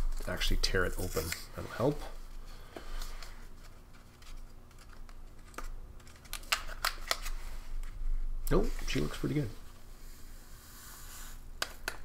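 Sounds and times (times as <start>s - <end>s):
packaging crinkling and clicking: 4.4s - 7.3s.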